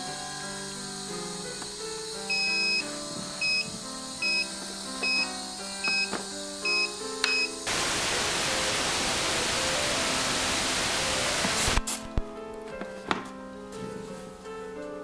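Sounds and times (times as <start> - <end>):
loud static hiss: 0.0 - 12.5
soft background music: 0.0 - 15.0
short electronic beeps: 2.3 - 2.8, 3.4 - 7.6.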